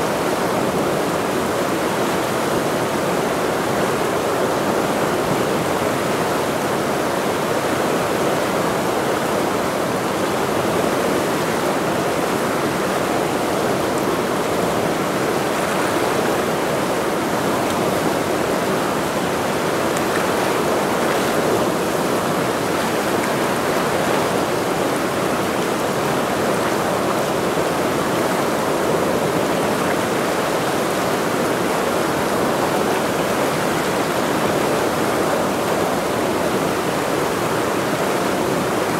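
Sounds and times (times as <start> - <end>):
mountain river rushing: 0.0 - 38.9.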